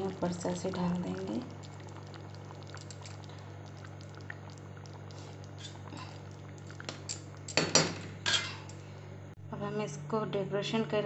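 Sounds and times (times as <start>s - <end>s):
curry bubbling in a pan: 0.0s - 8.7s
ladle scraping in a pan: 8.2s - 8.7s.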